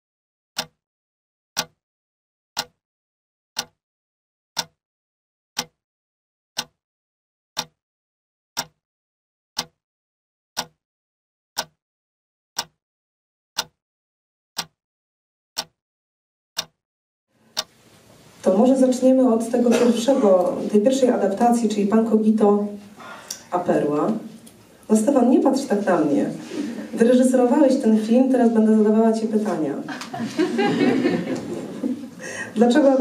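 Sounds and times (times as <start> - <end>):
clock ticking: 1.6 - 1.8, 5.6 - 5.8, 7.6 - 7.8, 8.6 - 8.8, 9.6 - 9.8, 10.6 - 10.8, 11.6 - 11.8, 12.6 - 12.8, 13.6 - 13.8, 14.6 - 14.8, 15.6 - 15.8, 16.6 - 16.8.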